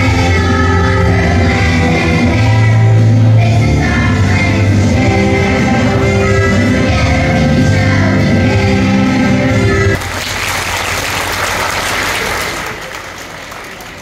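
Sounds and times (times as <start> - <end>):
audience applause: 10.0 - 14.0.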